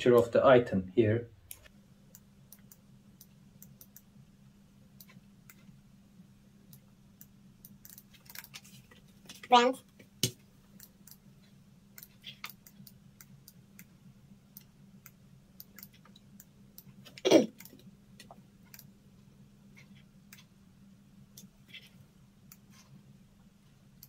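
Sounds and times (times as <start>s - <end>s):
faint low hum: 0.0s - 24.0s
laptop mouse and key clicks: 6.7s - 9.4s, 12.0s - 13.9s.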